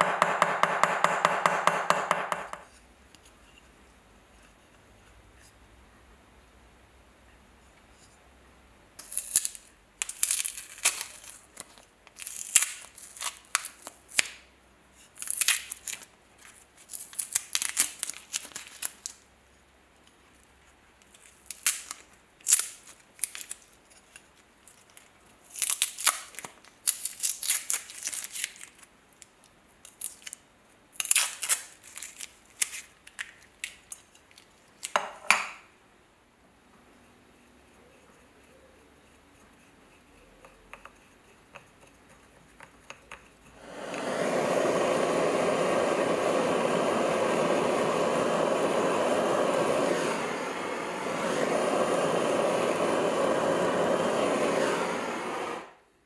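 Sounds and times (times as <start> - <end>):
wrapping crackling and tearing: 9.0 - 14.4, 15.1 - 19.2, 21.0 - 35.0.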